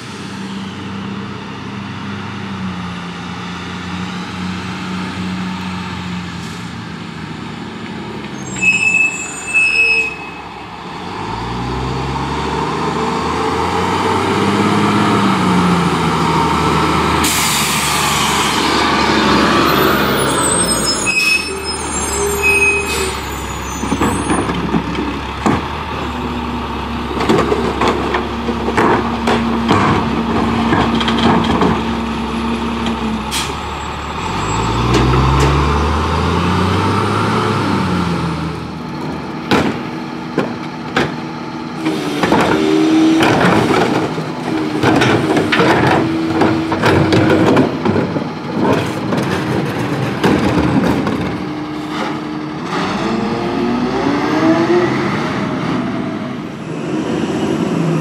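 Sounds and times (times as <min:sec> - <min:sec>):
garbage truck engine: 0:00.0 - 0:58.0
brake squeals: 0:08.2 - 0:10.7, 0:19.5 - 0:25.3, 0:28.6 - 0:35.6, 0:41.8 - 0:50.6
air brake hisses: 0:17.2 - 0:18.6
trash cart clanking: 0:19.2 - 0:35.7, 0:38.9 - 0:53.2.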